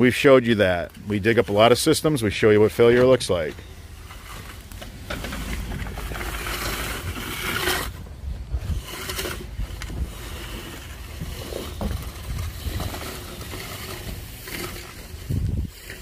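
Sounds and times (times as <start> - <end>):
plastic pipe scraping and rustling: 0.0 - 16.0
steady low rumble: 2.0 - 14.0.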